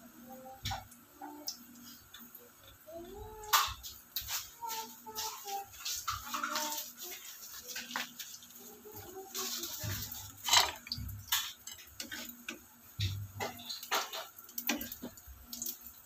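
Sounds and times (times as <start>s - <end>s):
spatula scraping a frying pan: 4.2s - 15.1s
utensils knocking on cookware: 9.6s - 15.2s.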